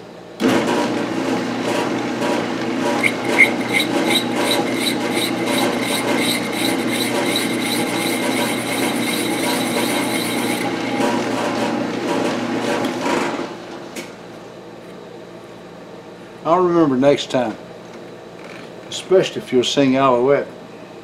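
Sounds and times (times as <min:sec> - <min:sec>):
metal lathe running: 0:02.4 - 0:12.7
cutting tool scraping metal: 0:03.0 - 0:11.3.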